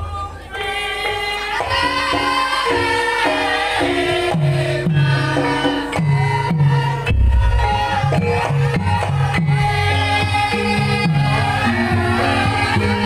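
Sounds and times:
low drum strokes: 7.1s - 9.0s.

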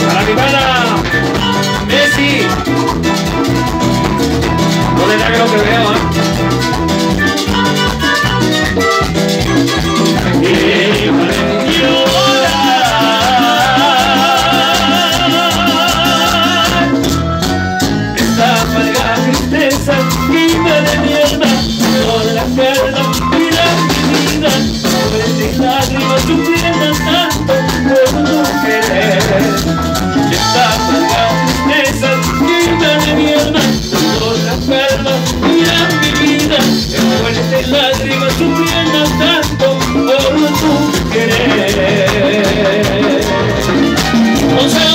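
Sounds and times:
latin dance band playing: 0.0s - 44.9s
singers' voices: 10.3s - 16.9s.

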